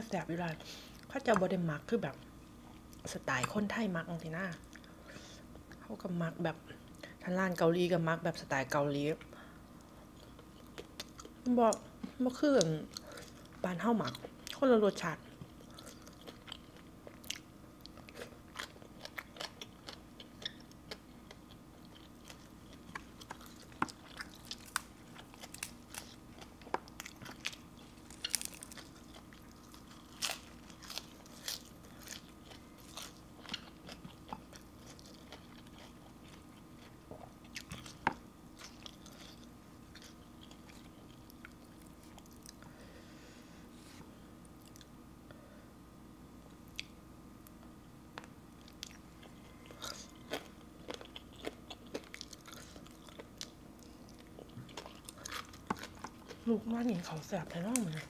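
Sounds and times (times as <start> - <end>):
faint steady hum: 0.0 - 58.0
crunching and chewing food: 9.1 - 43.0, 44.4 - 45.0, 46.5 - 58.0.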